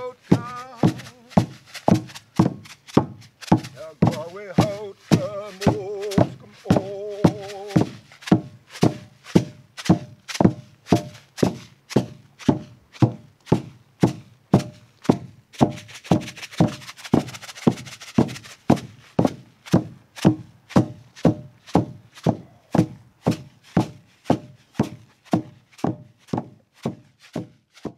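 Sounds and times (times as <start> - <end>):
person singing: 0.0 - 1.6, 3.7 - 8.0
hand drums beating: 0.0 - 27.9.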